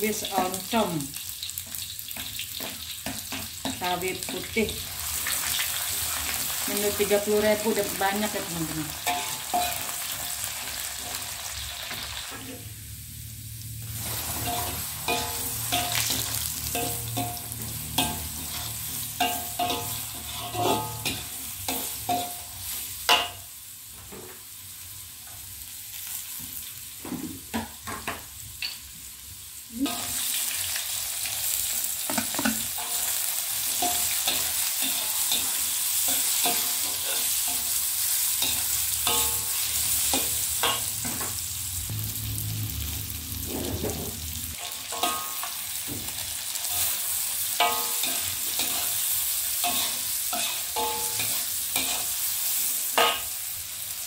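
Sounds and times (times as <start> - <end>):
oil sizzling in a wok: 0.0 - 54.0
metal spatula scraping a pan: 8.9 - 11.3, 13.9 - 23.4, 32.1 - 41.5, 42.9 - 45.9, 46.6 - 53.5.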